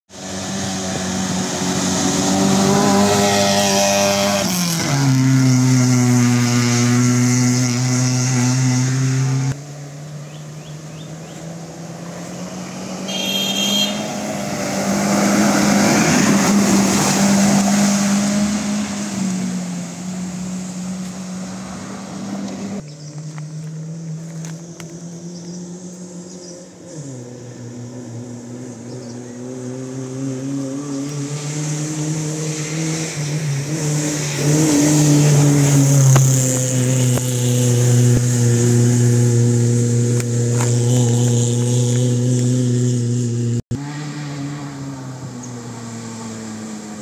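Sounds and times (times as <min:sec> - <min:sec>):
engines running hard: 0:00.1 - 0:47.0.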